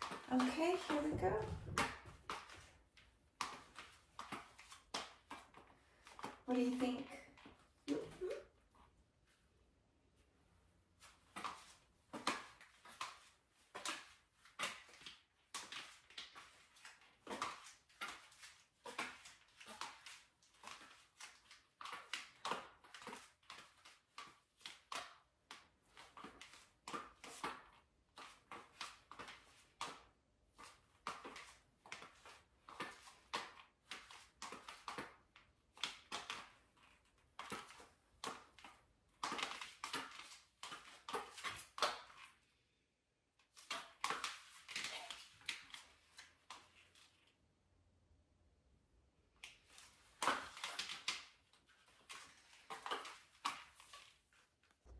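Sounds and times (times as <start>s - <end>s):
high heels clicking on tile: 0.0s - 7.6s.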